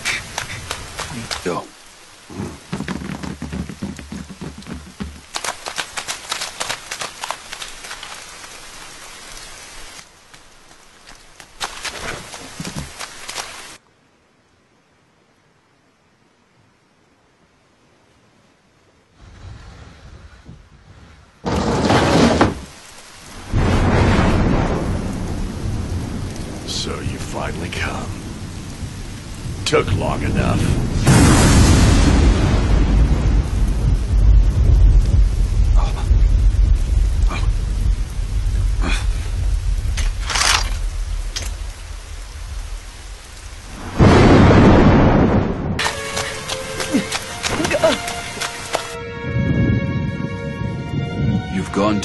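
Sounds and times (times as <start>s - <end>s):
rain: 0.0s - 52.0s
loud thunder clap: 23.4s - 28.4s, 29.5s - 37.3s, 43.6s - 46.0s
long peal of thunder: 23.4s - 40.0s, 40.8s - 45.8s, 49.0s - 51.6s
low thunder rumble: 23.4s - 45.9s.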